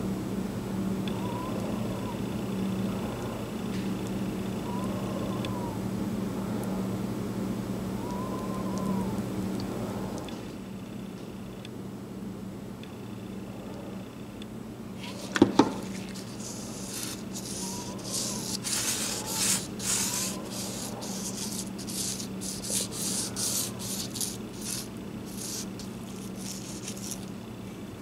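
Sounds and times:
gloved fingers rubbing handle: 0:15.0 - 0:27.3.

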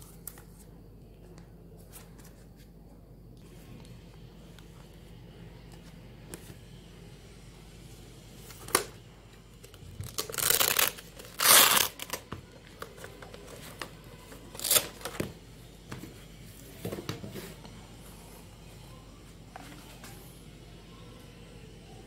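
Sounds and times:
velcro ripping open: 0:10.0 - 0:12.2, 0:14.6 - 0:15.0.

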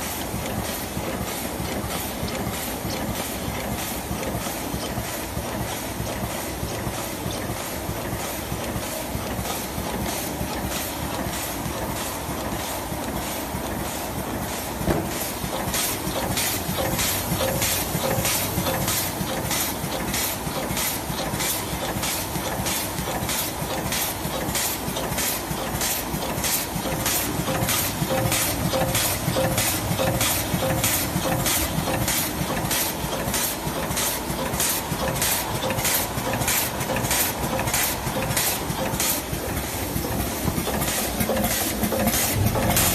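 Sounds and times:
packing machine running: 0:00.0 - 0:42.9
sharp machine strokes: 0:41.3 - 0:42.9.

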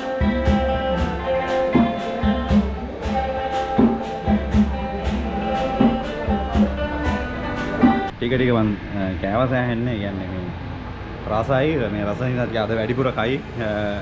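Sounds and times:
live band music: 0:00.0 - 0:08.1
percussive beat: 0:00.0 - 0:08.1.

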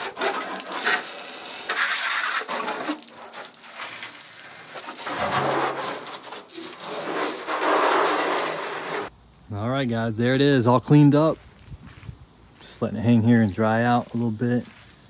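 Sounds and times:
pressure washer spraying metal: 0:00.0 - 0:09.1.

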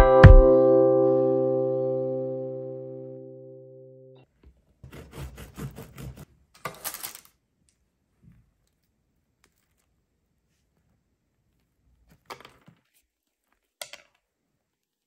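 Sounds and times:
bread crust crackling: 0:08.1 - 0:15.0.

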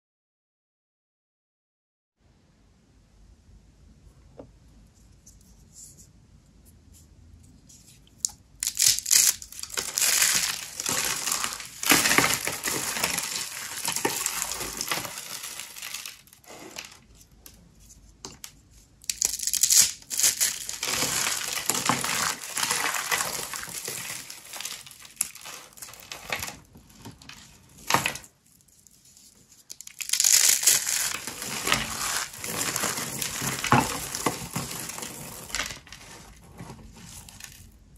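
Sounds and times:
dry soap crunching and crackling: 0:07.8 - 0:37.9.

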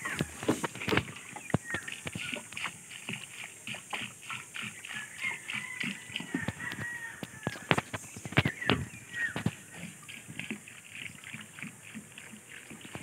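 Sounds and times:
footsteps: 0:00.0 - 0:04.4, 0:05.5 - 0:10.5
water glugging from jug: 0:00.0 - 0:13.0.

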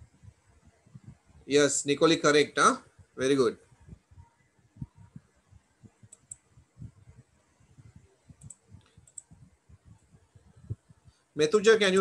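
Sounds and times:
mouse clicks: 0:06.1 - 0:06.4, 0:08.4 - 0:09.4.

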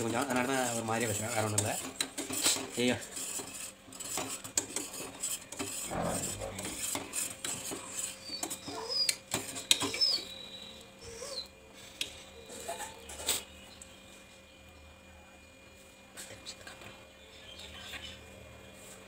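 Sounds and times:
metal ladle scraping pot: 0:00.1 - 0:08.2.

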